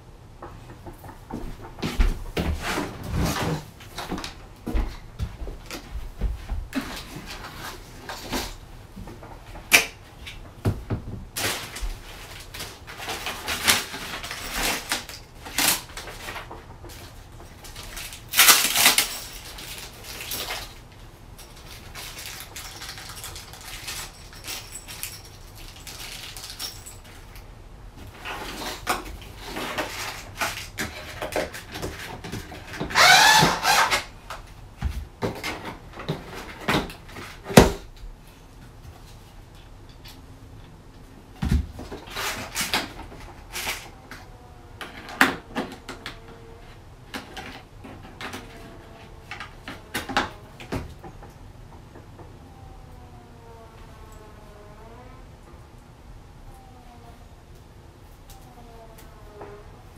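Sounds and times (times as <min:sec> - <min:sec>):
plastic packaging rustling: 0:11.3 - 0:27.4.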